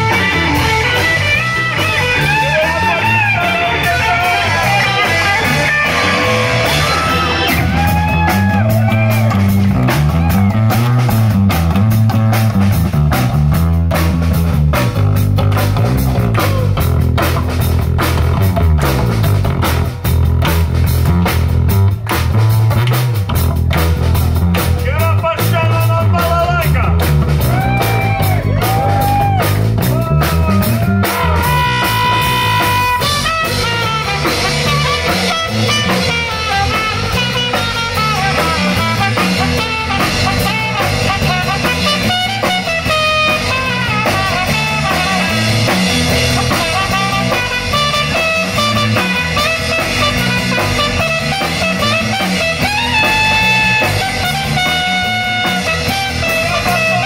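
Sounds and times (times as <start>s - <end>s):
live rock band playing: 0.0s - 57.0s
trumpet: 30.7s - 57.0s.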